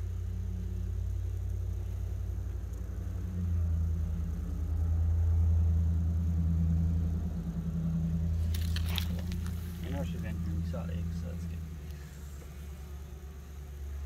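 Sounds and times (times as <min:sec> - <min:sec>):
low steady hum: 0:00.0 - 0:14.0
handling noise rattle: 0:08.4 - 0:11.3.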